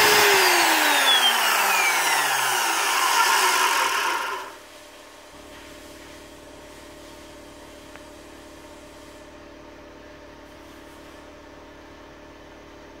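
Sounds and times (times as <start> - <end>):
electric motor humming and whining: 0.0 - 4.6.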